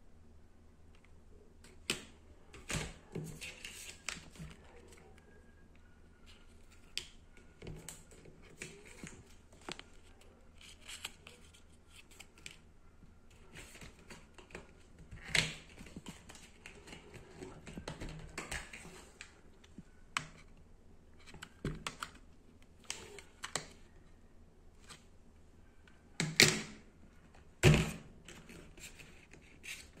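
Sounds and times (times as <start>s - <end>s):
paper card rustling: 7.8s - 12.6s.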